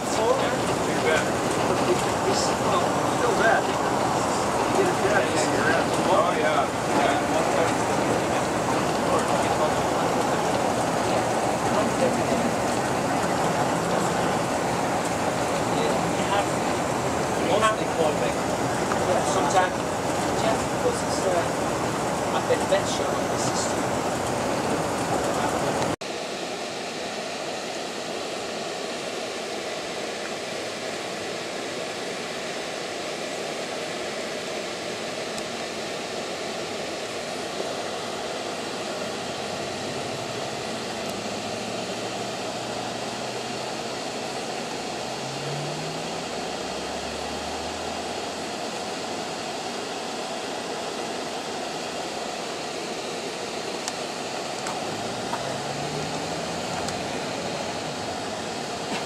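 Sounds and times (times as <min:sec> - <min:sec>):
vehicle engine and road noise: 0:00.0 - 0:26.0, 0:39.2 - 0:48.7, 0:54.6 - 0:59.0.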